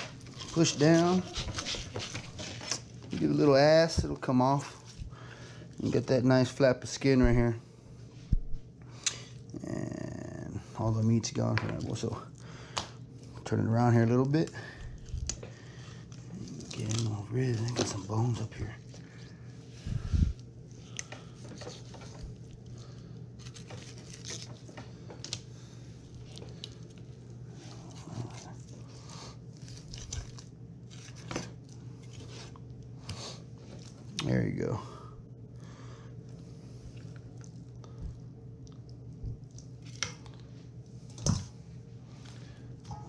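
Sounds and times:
knife scraping fish scales: 0.0s - 2.8s
steady low hum: 0.0s - 43.0s.

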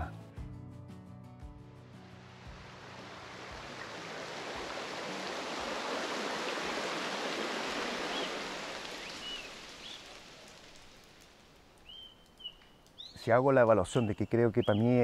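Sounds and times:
stream rushing over rocks: 2.0s - 11.5s.

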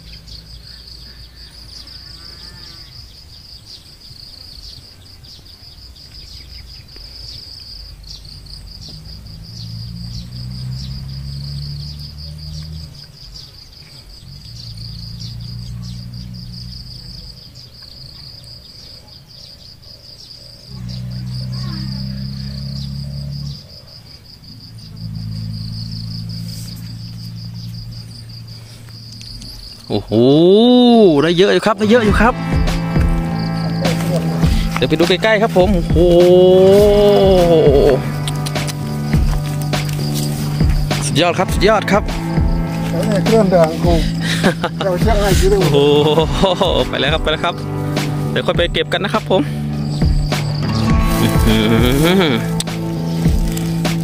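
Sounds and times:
insects buzzing: 0.0s - 54.0s
low humming drone: 7.8s - 13.4s, 14.0s - 17.6s, 20.7s - 29.8s, 31.9s - 54.0s.

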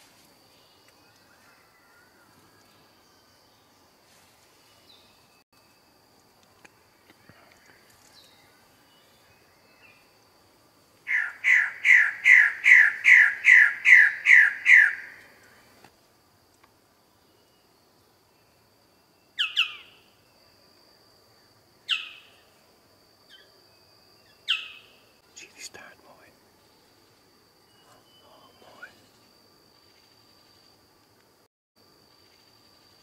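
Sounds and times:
bird calling harsh notes: 11.1s - 15.2s.

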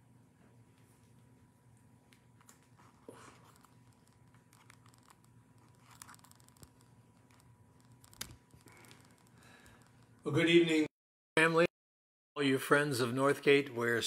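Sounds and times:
faint steady hum: 0.0s - 11.7s
soft clicks and rustles: 0.4s - 10.3s.

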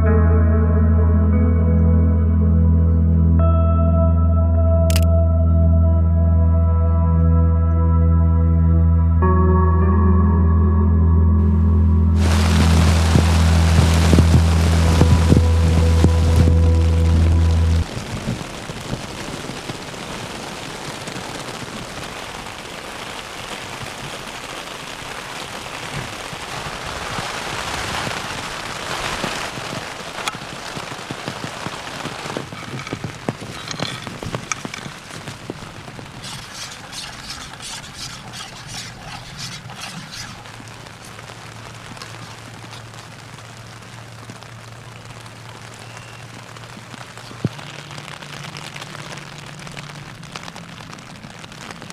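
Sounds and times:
rain falling: 12.1s - 51.9s.

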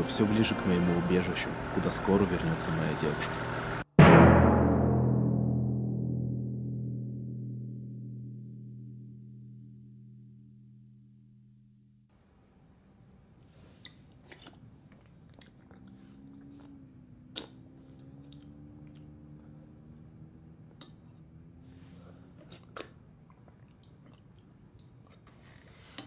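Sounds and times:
low steady hum: 0.0s - 3.9s, 4.9s - 25.3s
person chewing: 13.7s - 19.6s, 22.3s - 26.0s.

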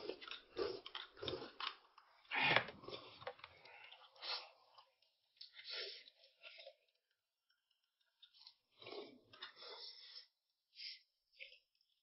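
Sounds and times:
person biting and chewing food: 0.0s - 3.2s.

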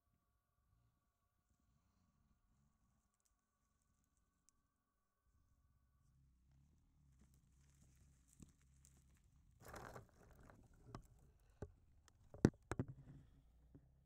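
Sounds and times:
sharp knocks and clicks: 10.8s - 13.2s.

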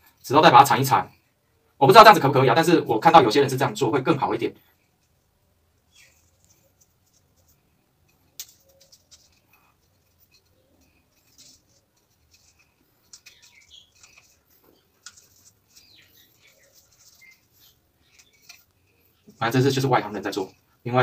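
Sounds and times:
tape crinkling and scratching: 5.8s - 20.8s.

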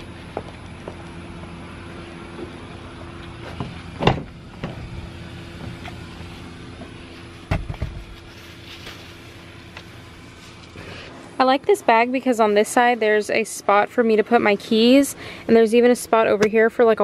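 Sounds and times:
car engine idling: 0.0s - 11.1s.

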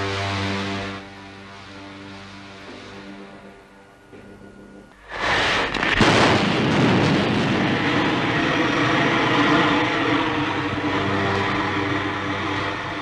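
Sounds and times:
low hum: 0.0s - 13.0s
rocket engine roaring: 5.0s - 13.0s.

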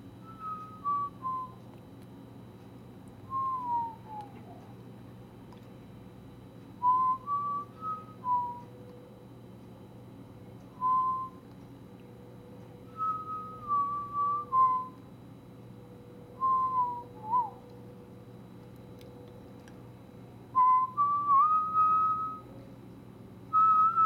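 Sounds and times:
faint steady hum: 0.0s - 24.0s
person whistling a tune: 0.2s - 1.6s, 3.3s - 4.5s, 6.8s - 8.7s, 10.7s - 11.4s, 12.9s - 15.0s, 16.4s - 17.6s, 20.6s - 22.5s, 23.5s - 24.0s.

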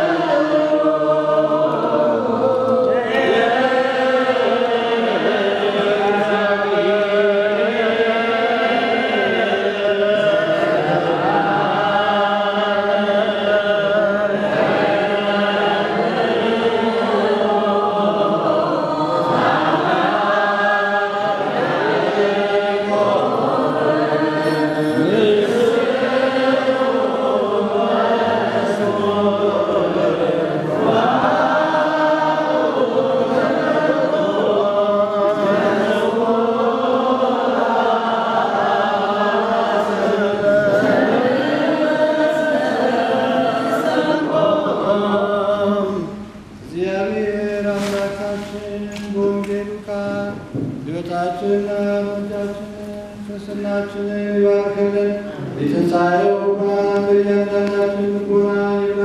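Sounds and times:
group singing a chant: 0.0s - 59.0s.

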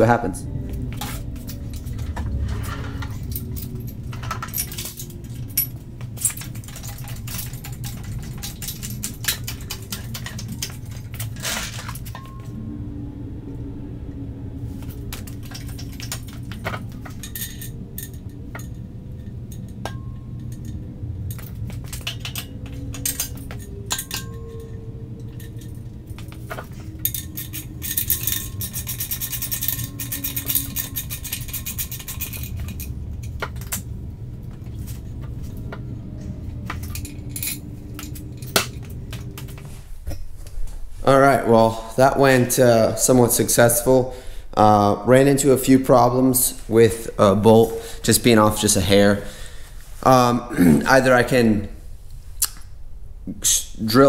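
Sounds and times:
steady low hum: 0.0s - 54.0s
metal clinking and knocking: 0.7s - 12.6s, 14.8s - 40.5s.

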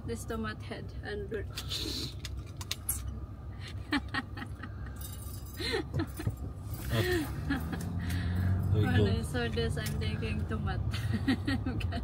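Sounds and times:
car cabin running noise: 5.8s - 8.0s.

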